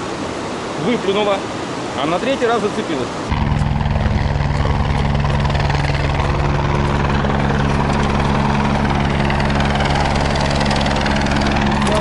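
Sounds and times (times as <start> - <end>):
engine running steadily: 3.3 - 12.0.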